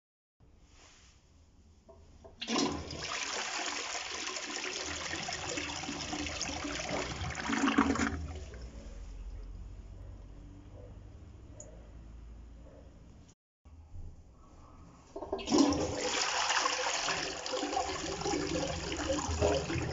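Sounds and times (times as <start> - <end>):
toilet flushing: 2.4 - 8.8, 15.2 - 19.9.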